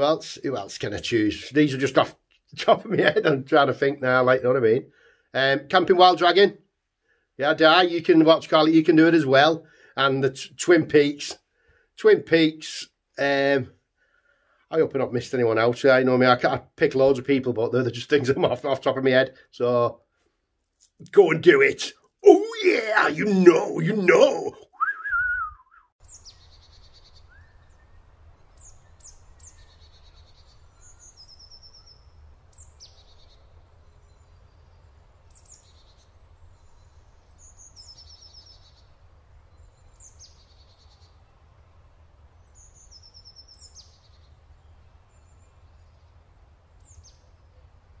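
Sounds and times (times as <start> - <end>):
songbirds chirping and trilling: 21.1 - 48.0.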